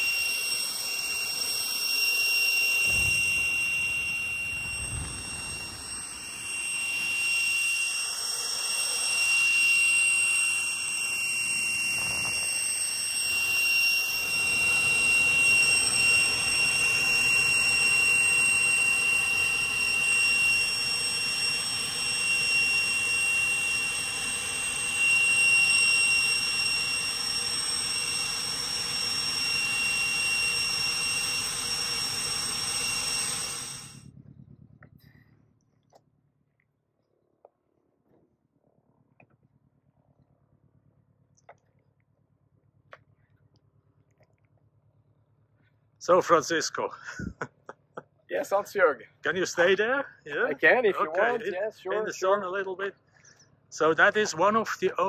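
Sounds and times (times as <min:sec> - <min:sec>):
rushing jet noise: 0:00.0 - 0:34.0
jet engine high whine: 0:00.0 - 0:35.6, 0:46.0 - 0:55.0.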